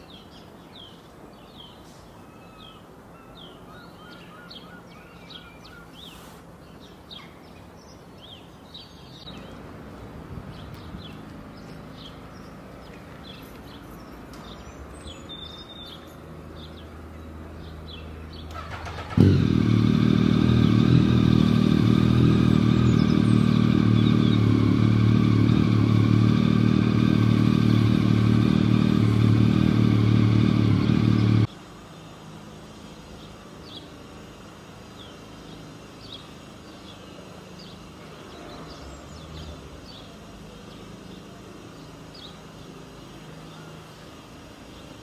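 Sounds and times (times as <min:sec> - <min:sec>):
small birds chirping: 0:00.0 - 0:19.2, 0:20.0 - 0:45.0
vehicle engine running: 0:16.5 - 0:31.5.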